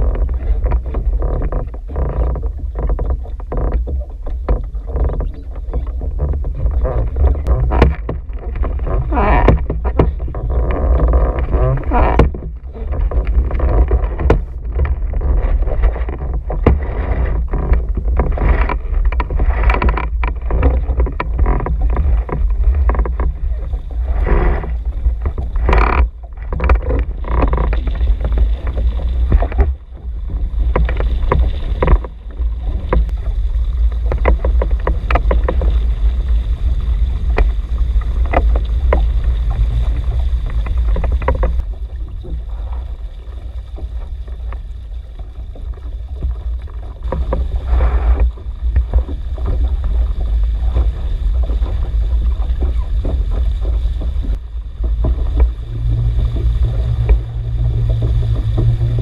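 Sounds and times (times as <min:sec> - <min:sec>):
water splashing against hull: 0:00.0 - 0:59.0
wind buffeting microphone: 0:00.0 - 0:59.0
short knocks: 0:00.7 - 0:15.2.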